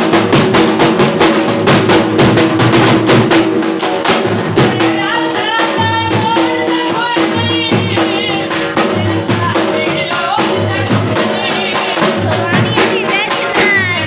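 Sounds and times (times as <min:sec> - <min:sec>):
dhol drum beaten with sticks: 0:00.0 - 0:14.0
person singing: 0:04.7 - 0:14.0.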